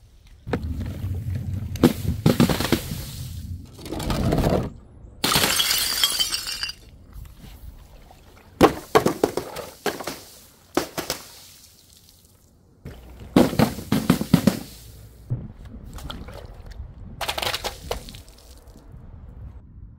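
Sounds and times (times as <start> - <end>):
glass breaking: 5.2 - 6.9
glass shards clinking: 5.2 - 6.9.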